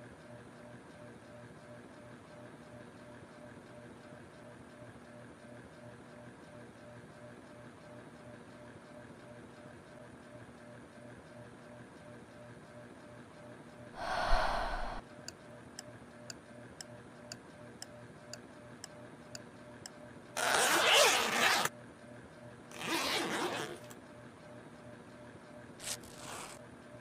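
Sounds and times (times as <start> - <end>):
zipper pulls: 20.4 - 21.7, 22.7 - 23.9, 25.8 - 26.6.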